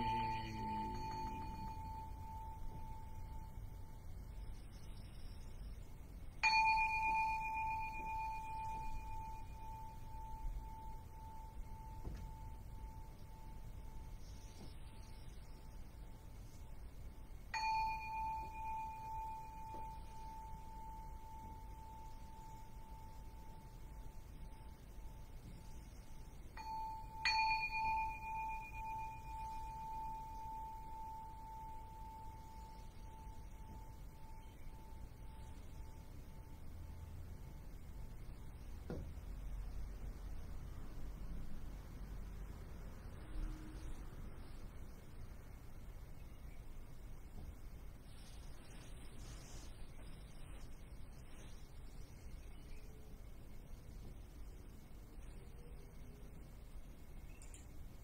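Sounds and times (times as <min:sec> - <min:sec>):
temple bowl bell ringing: 0:00.0 - 0:39.2.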